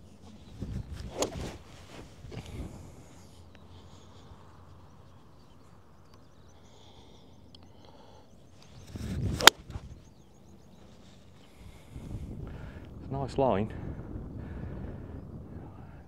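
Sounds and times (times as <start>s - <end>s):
golf club swish: 0.9s - 2.1s
club striking golf ball: 1.0s - 1.6s, 9.4s - 9.8s.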